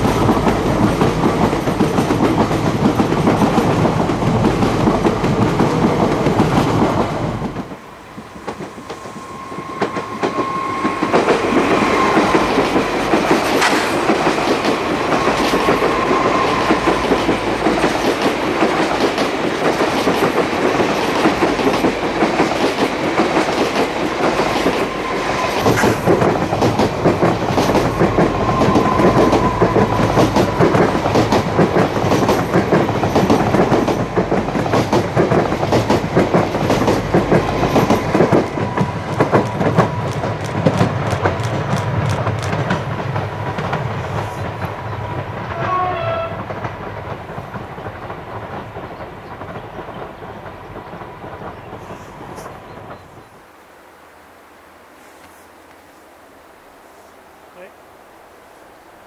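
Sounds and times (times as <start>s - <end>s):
wheels clicking over rail joints: 0.0s - 9.1s, 9.7s - 53.1s
diesel train engines passing: 0.0s - 53.4s.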